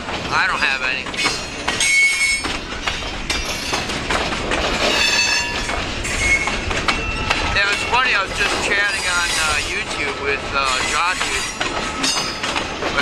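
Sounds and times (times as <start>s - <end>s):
freight car wheels clanking: 0.0s - 13.0s
high-pitched wheel squeal: 4.9s - 9.8s.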